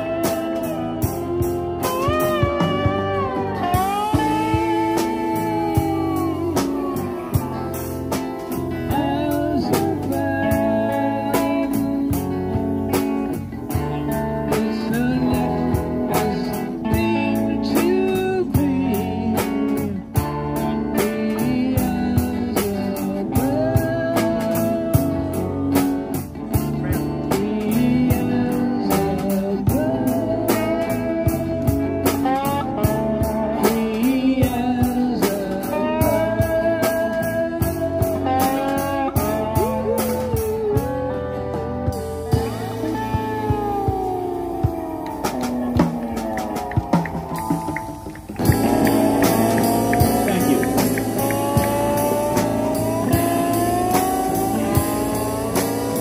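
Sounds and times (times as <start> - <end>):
live rock band playing: 0.0 - 56.0
gliding lead melody: 40.5 - 56.0.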